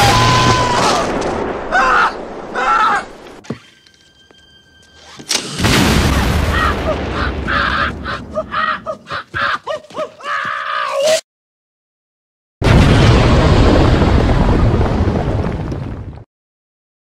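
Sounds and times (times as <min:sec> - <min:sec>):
loud boom with low rumble: 0:12.6 - 0:16.2.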